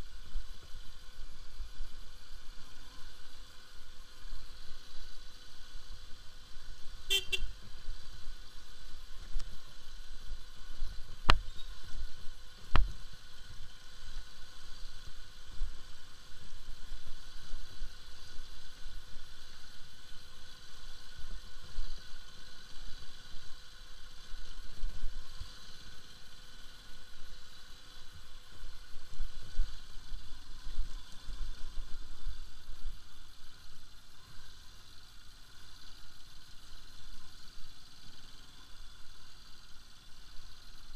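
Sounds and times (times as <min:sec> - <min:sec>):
motorcycle engine rumbling: 0:00.0 - 0:40.9
horn beep: 0:07.1 - 0:07.5.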